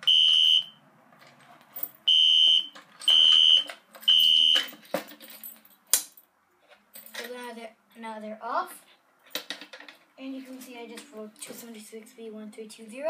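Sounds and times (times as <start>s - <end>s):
fire alarm horn beeping: 0.0s - 0.8s, 2.1s - 4.7s.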